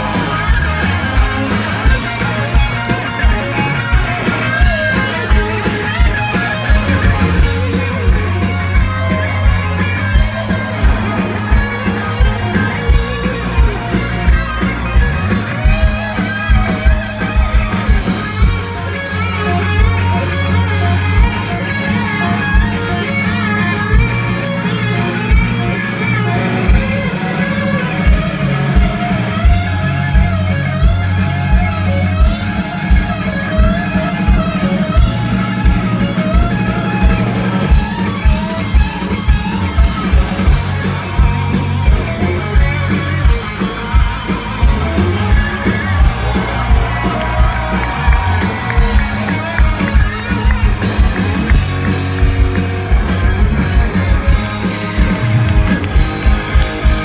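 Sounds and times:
drum beat: 0:00.0 - 0:18.8, 0:32.4 - 0:57.0
bass: 0:00.0 - 0:57.0
electric guitar solo: 0:00.0 - 0:57.0.

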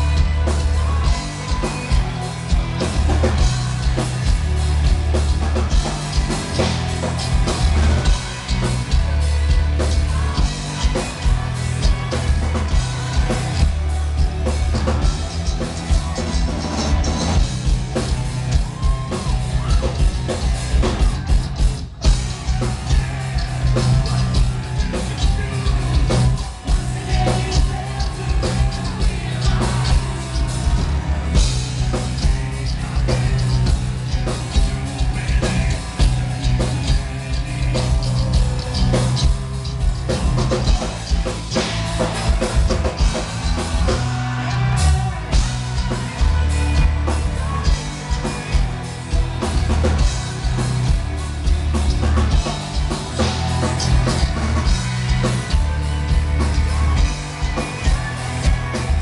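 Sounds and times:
distorted guitars: 0:00.0 - 0:59.0
drums pounding: 0:00.0 - 0:59.0
heavy bass: 0:00.0 - 0:59.0.

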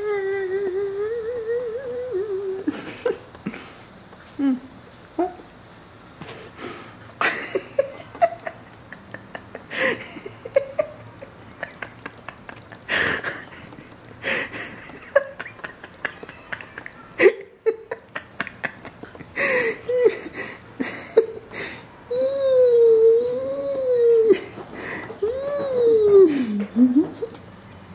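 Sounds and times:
cats meowing and chirping: 0:15.5 - 0:17.3.

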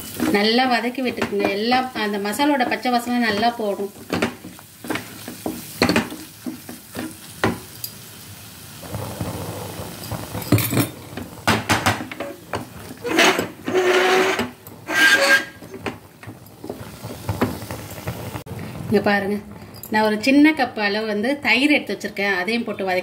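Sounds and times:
paste sizzling in oil: 0:00.0 - 0:18.7
wooden spatula scraping a pan: 0:12.0 - 0:18.4.

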